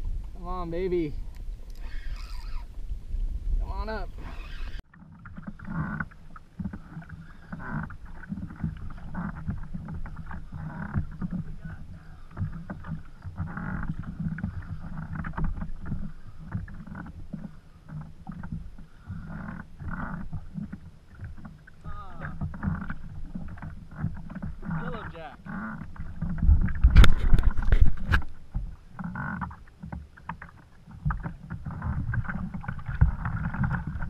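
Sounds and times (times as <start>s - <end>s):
water sloshing against kayak hull: 0.0s - 34.0s
fishing rod and reel handling: 1.2s - 2.8s.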